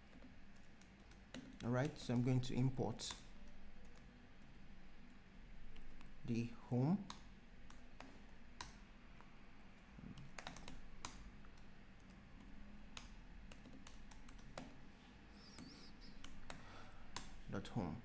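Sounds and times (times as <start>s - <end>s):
computer keyboard typing: 0.0s - 4.1s, 10.1s - 14.7s.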